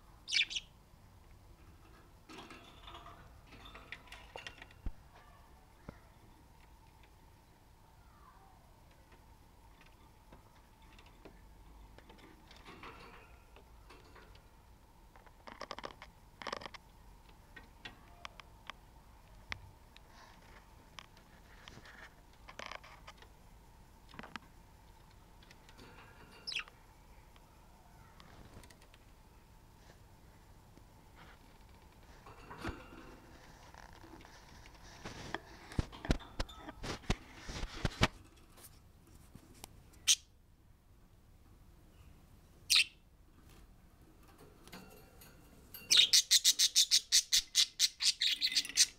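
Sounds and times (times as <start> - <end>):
light rustle: 31.1 - 40.1.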